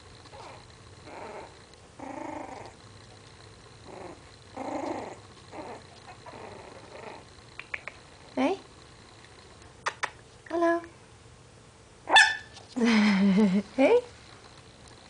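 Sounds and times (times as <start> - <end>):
puppy growling: 0.2 - 7.5.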